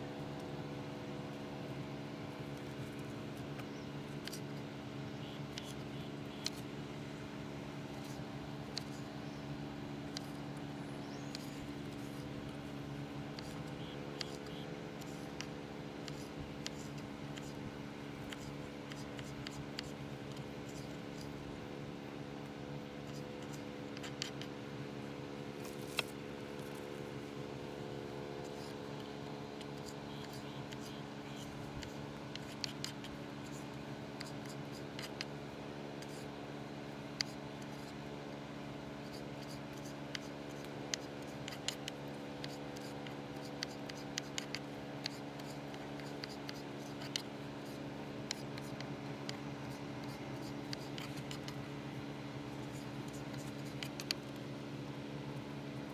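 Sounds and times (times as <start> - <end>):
steady low hum: 0.0 - 55.9.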